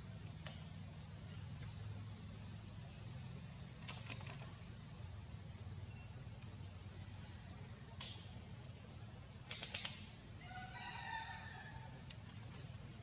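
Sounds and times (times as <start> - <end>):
rooster crowing: 10.4 - 12.2.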